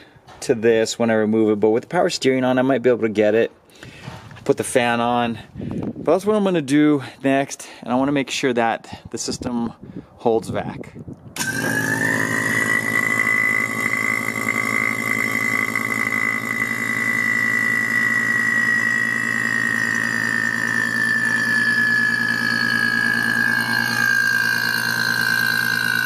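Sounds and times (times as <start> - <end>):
vacuum pump motor humming: 11.4 - 26.0.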